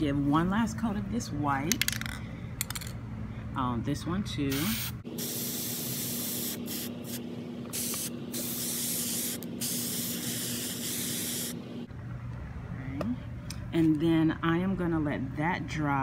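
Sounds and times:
spray paint can hissing: 4.5 - 11.6.

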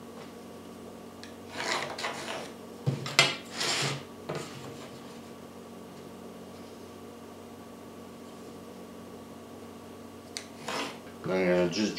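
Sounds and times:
pencil scratching along ruler: 1.5 - 2.5, 3.5 - 4.0, 10.6 - 11.0.

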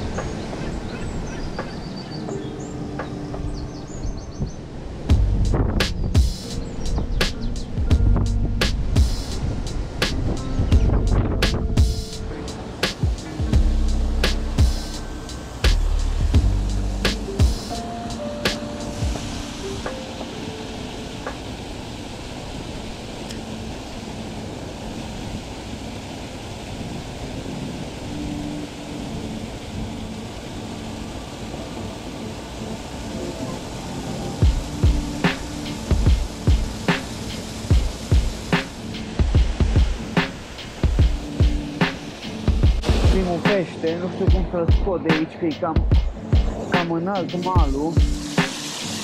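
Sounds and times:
water rushing and splashing: 0.0 - 49.0
drum hits: 5.1 - 6.6, 7.2 - 17.8, 34.4 - 43.6, 44.3 - 45.2, 45.8 - 46.9, 47.5 - 48.6
low synth notes: 5.1 - 20.1.

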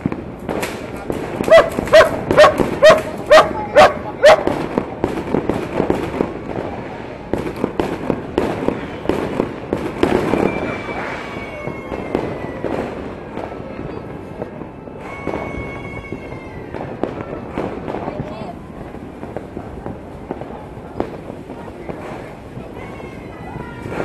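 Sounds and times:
firecrackers popping: 0.0 - 24.0
dog barking: 1.5 - 4.5
falling whistle: 10.2 - 12.0.

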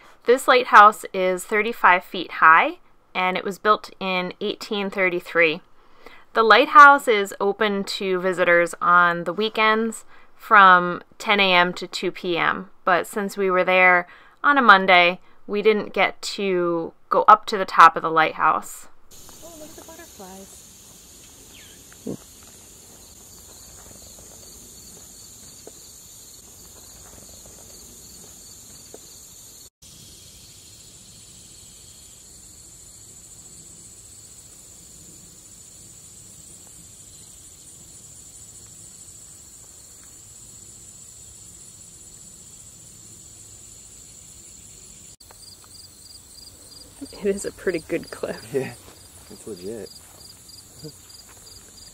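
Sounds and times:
insects trilling: 19.1 - 51.9.

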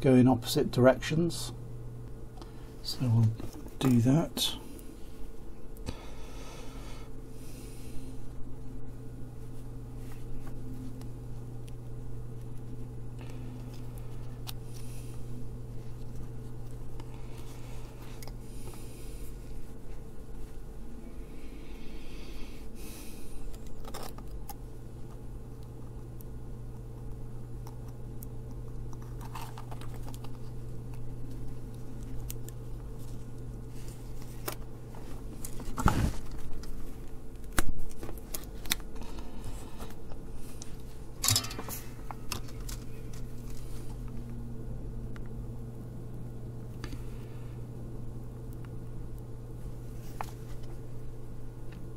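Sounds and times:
steady low hum: 0.0 - 51.9
tools and components clicking: 41.2 - 41.8.

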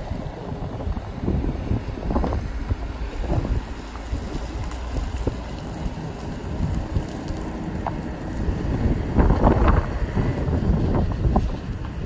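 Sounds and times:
pickup truck engine rumbling: 0.0 - 12.0
wind buffeting microphone: 0.0 - 12.0.

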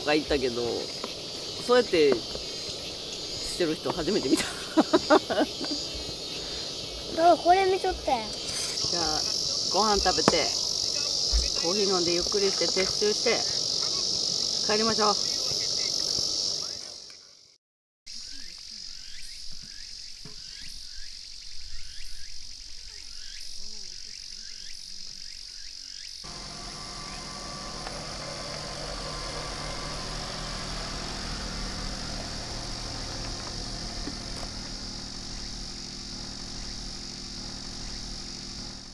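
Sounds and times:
high insect drone: 0.0 - 17.5, 18.1 - 38.9
low rumble: 26.3 - 38.9
short rising chirp: 26.3 - 38.9.

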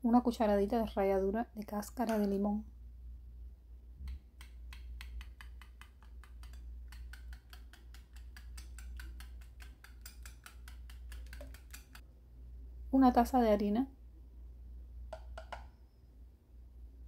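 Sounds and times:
whisk clicking against bowl: 4.1 - 12.0, 15.1 - 15.7.

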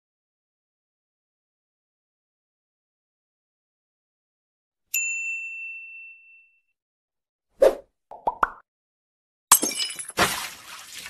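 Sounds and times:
glass breaking: 9.5 - 10.6.

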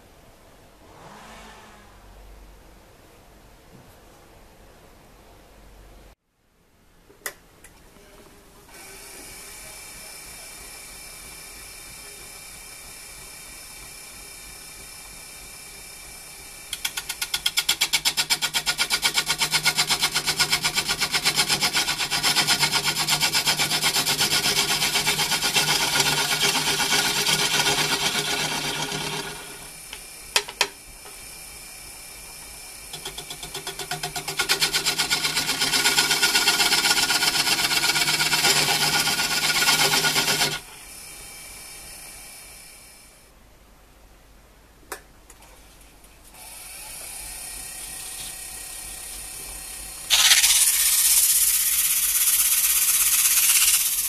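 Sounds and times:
lathe running quietly: 8.0 - 43.3, 46.3 - 54.0
gouge scraping chatter on lathe: 16.8 - 30.0, 32.9 - 40.6, 50.1 - 54.0.

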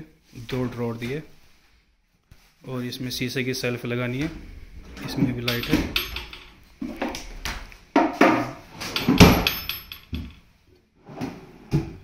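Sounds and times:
wooden drawers sliding and knocking: 4.1 - 10.4, 11.0 - 12.0.

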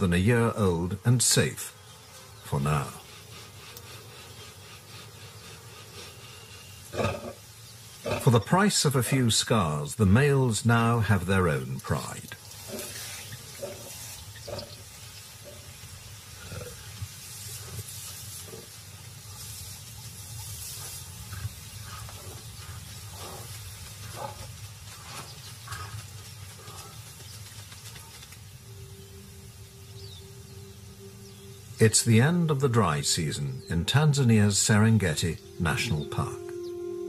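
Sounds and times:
steady hiss: 0.0 - 37.0
lions growling: 2.5 - 7.4, 8.0 - 8.4, 12.6 - 14.8, 16.4 - 18.8
low held musical note: 28.6 - 37.0.

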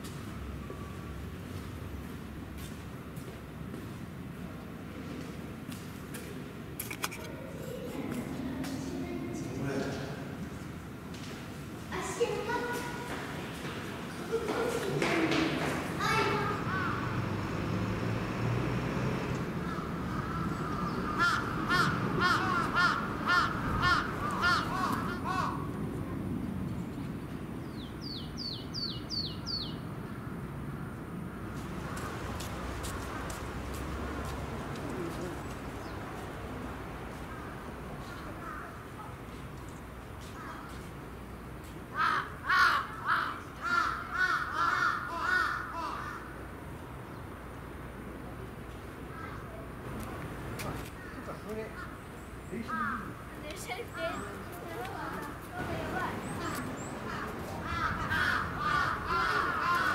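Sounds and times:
crow cawing: 16.3 - 17.1, 19.6 - 25.7, 38.2 - 38.8, 41.9 - 46.4, 51.0 - 52.0, 52.7 - 53.2, 56.4 - 59.9.

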